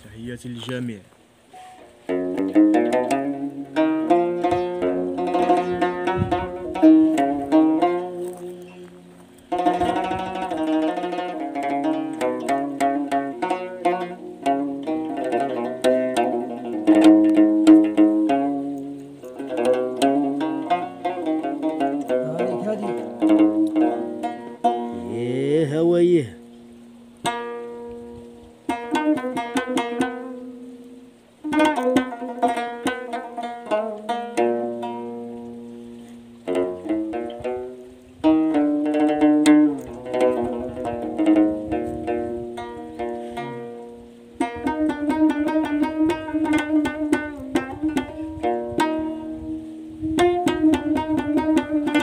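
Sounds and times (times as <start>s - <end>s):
plucked lute melody: 0.0s - 52.0s
low string ringing: 1.5s - 52.0s.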